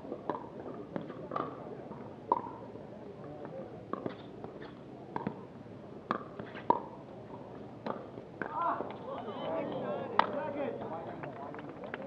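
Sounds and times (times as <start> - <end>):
murmur of voices: 6.8 - 12.0.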